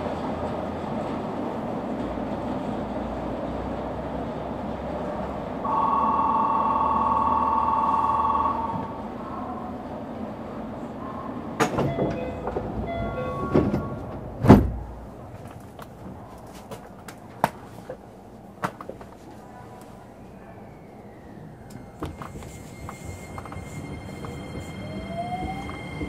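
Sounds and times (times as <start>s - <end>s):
train humming: 0.0s - 26.0s
two-tone electronic buzzer: 5.7s - 8.9s
sliding doors clicking and knocking: 11.6s - 19.1s, 21.9s - 24.6s
loud thump: 14.4s - 15.0s.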